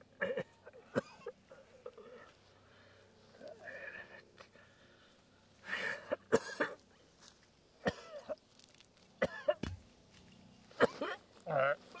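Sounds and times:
man coughing: 0.2s - 2.3s, 5.8s - 6.8s, 10.8s - 11.2s.

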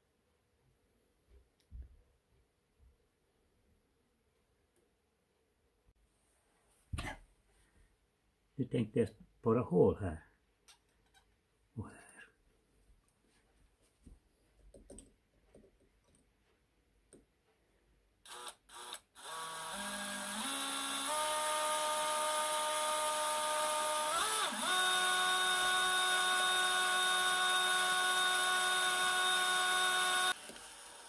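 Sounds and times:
cordless drill whining: 18.2s - 31.0s.

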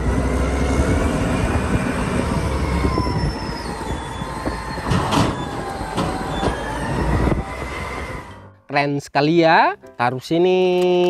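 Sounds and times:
diesel engine rumbling under load: 0.0s - 8.6s
hydraulic whines: 0.0s - 8.6s.

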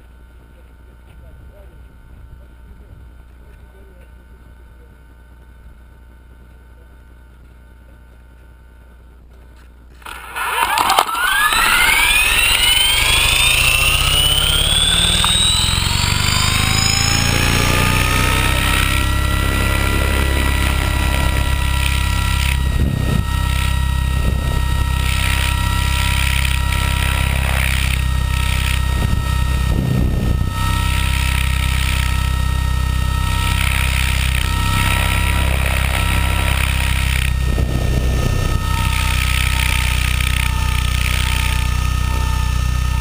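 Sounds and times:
radio-controlled helicopter motor whine: 9.9s - 43.0s.

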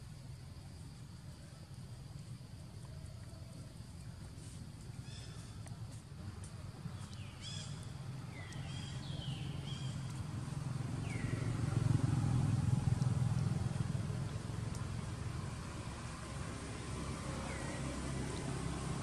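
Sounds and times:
passing vehicle engine rumble: 0.0s - 19.0s.

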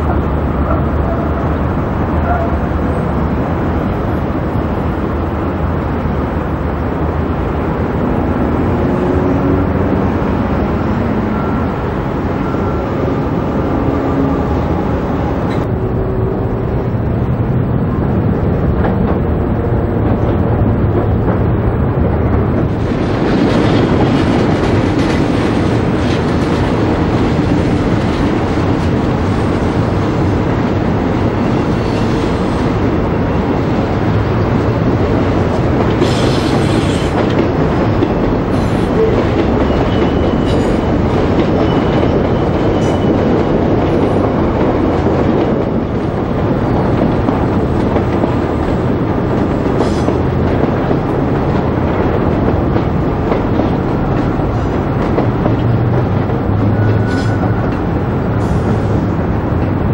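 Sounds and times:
electric train rumbling: 0.0s - 59.9s
high wheel squeals: 38.6s - 43.4s, 56.6s - 58.8s.

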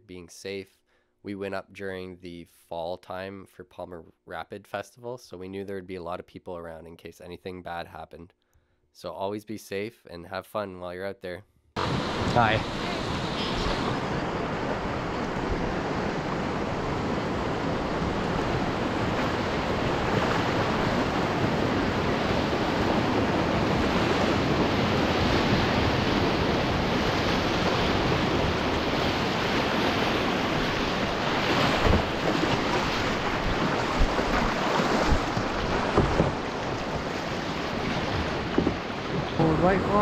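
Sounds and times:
whitewater rushing: 11.8s - 40.0s
wind rumbling on microphone: 11.8s - 40.0s
low thumps: 31.7s - 37.2s, 37.8s - 40.0s.

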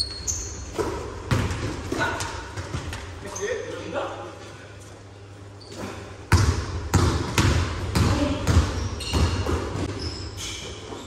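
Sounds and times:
sneaker squeaks: 0.0s - 3.8s, 5.5s - 6.5s, 7.3s - 11.0s
basketball bouncing on gym floor: 0.7s - 3.1s, 6.3s - 10.2s.

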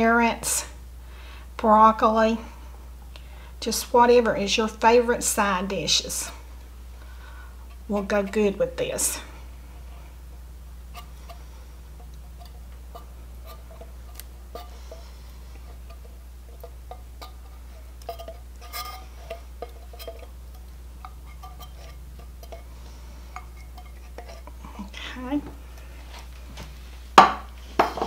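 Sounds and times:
steady low hum: 0.0s - 28.0s
spatula scraping a tin can: 10.9s - 22.7s, 23.3s - 24.6s.

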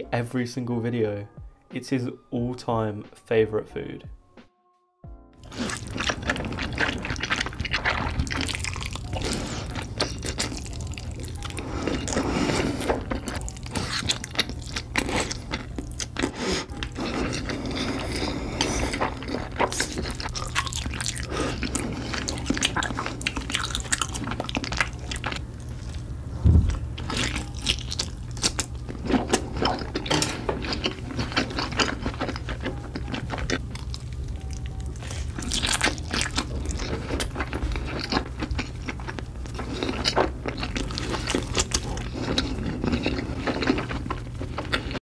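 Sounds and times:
chewing with wet smacks: 5.4s - 26.0s, 26.6s - 45.0s
low thump: 26.4s - 26.9s.

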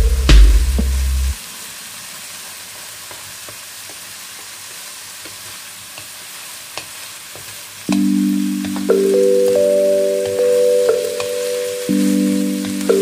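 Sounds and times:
food sizzling in frying pan: 1.4s - 13.0s
spatula scraping and tapping pan: 5.2s - 9.6s.

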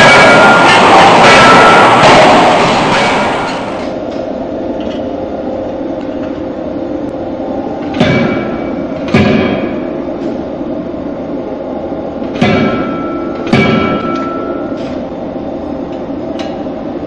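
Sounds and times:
forging hammer heavy blows: 0.0s - 4.0s
steady background din: 0.0s - 17.0s.

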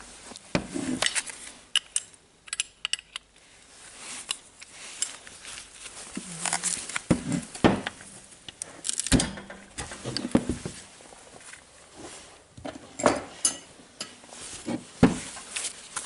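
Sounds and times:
wrench clinking on metal: 13.0s - 14.2s.

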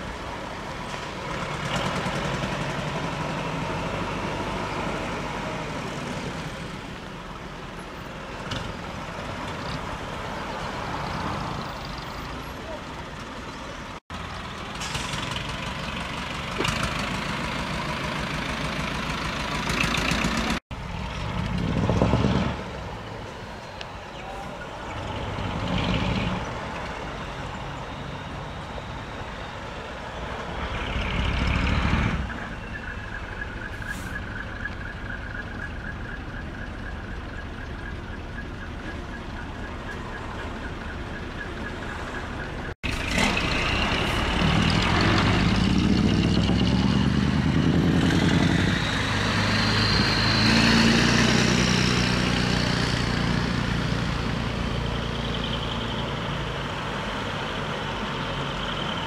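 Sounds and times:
truck engines driving past: 0.0s - 59.0s
truck engine revving: 1.0s - 7.1s, 14.2s - 23.1s, 24.8s - 29.1s, 30.0s - 32.6s, 41.8s - 59.0s.

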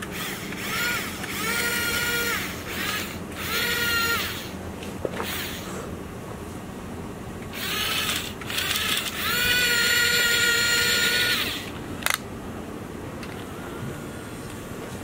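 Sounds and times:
toy electric motors whining: 0.0s - 4.6s, 5.2s - 5.7s, 7.5s - 12.2s.

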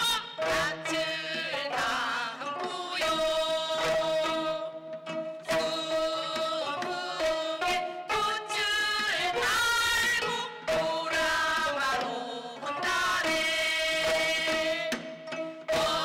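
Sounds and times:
women singing folk song: 0.0s - 4.8s, 5.5s - 16.0s.

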